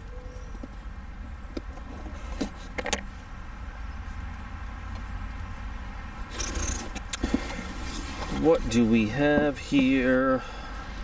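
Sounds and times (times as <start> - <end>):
cardboard box rustling: 6.4 - 9.9.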